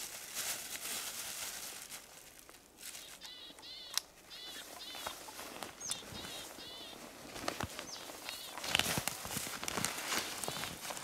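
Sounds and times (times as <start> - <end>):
rustling: 0.0 - 3.4, 4.4 - 11.0
bird calling: 2.9 - 8.8, 10.1 - 10.8.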